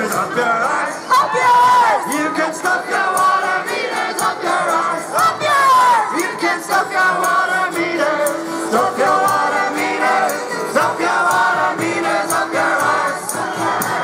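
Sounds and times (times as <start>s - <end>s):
acoustic guitar: 0.0s - 14.0s
percussion beat: 0.0s - 14.0s
voices singing: 0.0s - 14.0s.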